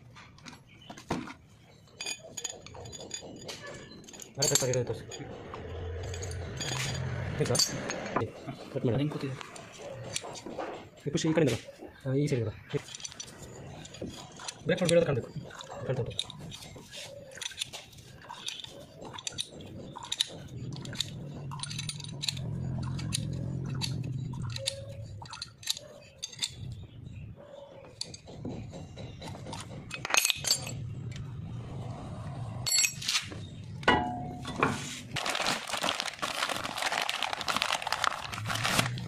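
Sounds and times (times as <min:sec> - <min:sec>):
metal clamp clicking: 0:12.8 - 0:26.8
plastic bag crinkling: 0:35.1 - 0:39.0.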